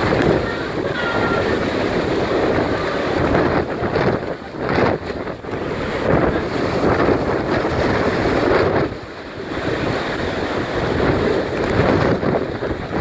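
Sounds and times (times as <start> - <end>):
strong wind buffeting microphone: 0.0 - 13.0.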